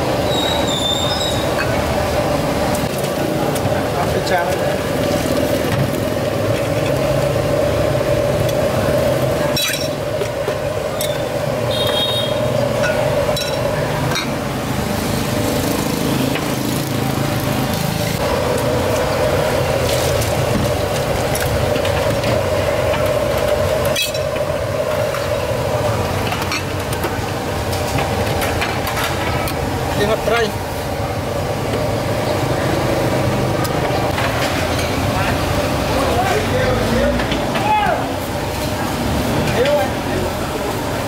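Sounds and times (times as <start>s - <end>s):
steady mechanical drone: 0.0s - 41.0s
utensils clinking on pots and bowls: 9.2s - 11.4s, 12.8s - 14.4s, 19.8s - 25.4s.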